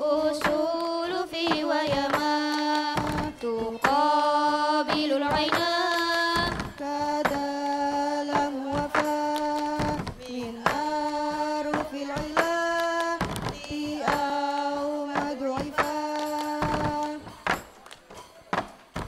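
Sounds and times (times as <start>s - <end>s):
young women chanting in unison: 0.0s - 17.5s
plastic cups knocking on table: 2.9s - 4.0s, 4.9s - 7.4s, 8.3s - 14.4s.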